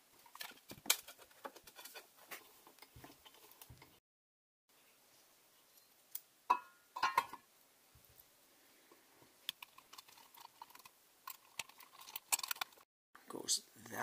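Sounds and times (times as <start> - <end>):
metal parts and tools clinking: 9.5 - 12.8.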